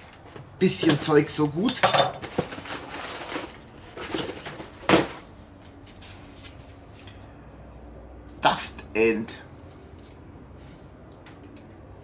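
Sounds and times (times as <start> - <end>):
cardboard and packing rustling: 0.0 - 7.1.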